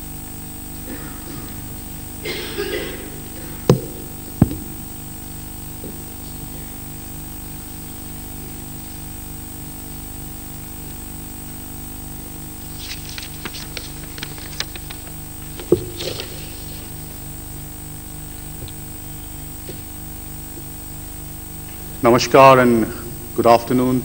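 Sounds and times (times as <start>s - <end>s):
electrical hum and hiss: 0.0s - 24.0s
sharp knocks: 3.7s - 4.9s
small clicks and rustles: 12.8s - 16.5s.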